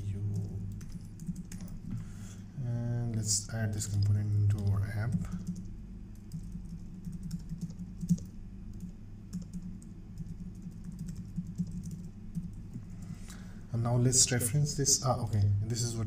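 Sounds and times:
computer keyboard typing: 0.2 - 1.9, 3.8 - 13.1.

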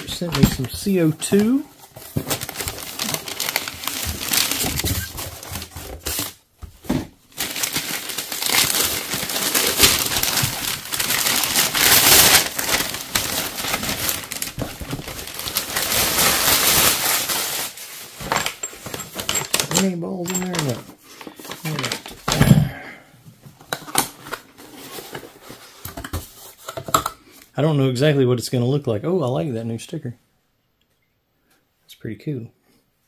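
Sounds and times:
packaging crinkling by hand: 0.0 - 6.4, 7.3 - 22.4.

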